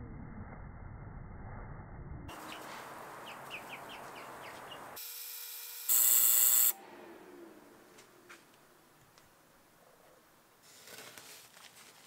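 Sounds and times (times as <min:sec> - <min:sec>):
high bird chirps: 0:02.3 - 0:05.0
high-pitched buzz: 0:05.0 - 0:08.1.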